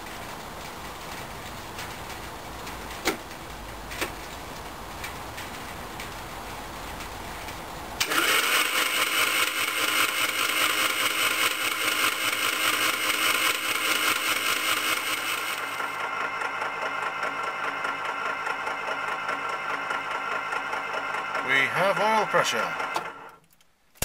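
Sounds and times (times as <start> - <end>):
starter motor cranking engine: 8.0 - 23.4.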